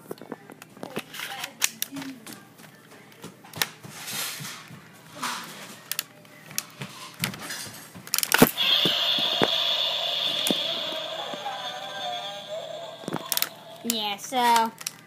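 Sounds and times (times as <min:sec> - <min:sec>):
toy electronic blast sound effect: 0:08.4 - 0:13.8.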